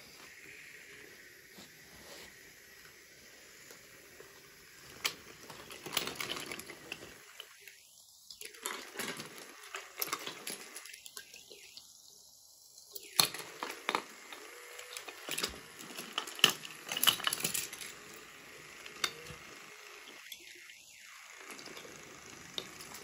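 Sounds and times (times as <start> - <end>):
wooden toy trains clacking: 3.7 - 7.8, 13.0 - 20.7, 21.4 - 23.0.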